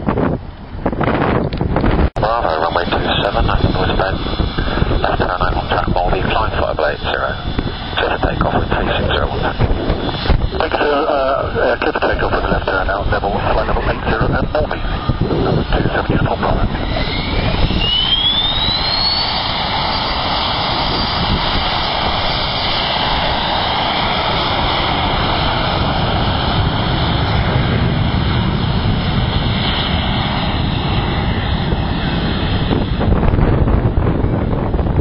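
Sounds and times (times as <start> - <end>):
jet engines spooling up: 1.6 - 34.9.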